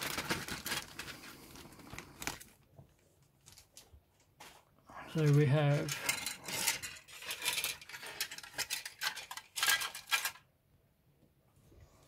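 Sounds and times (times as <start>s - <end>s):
plastic sprues clattering: 5.2s - 10.5s.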